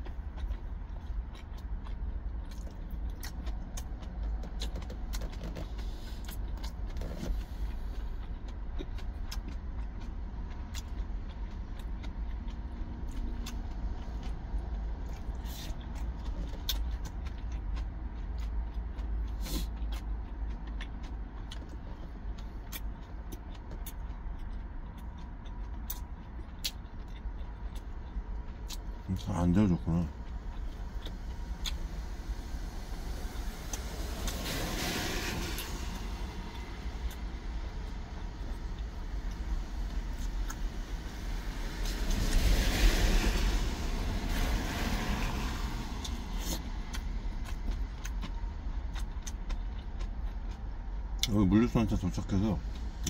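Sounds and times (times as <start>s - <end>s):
quiet chewing: 0.0s - 31.9s, 46.0s - 51.4s.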